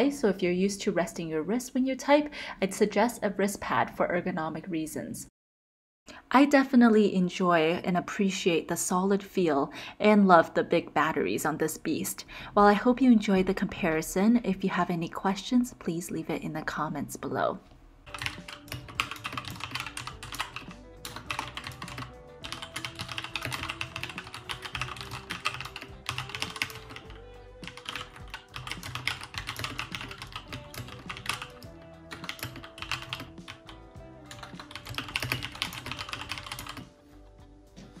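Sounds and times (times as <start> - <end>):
background music: 17.9 - 38.0
mechanical keyboard typing: 18.1 - 36.9.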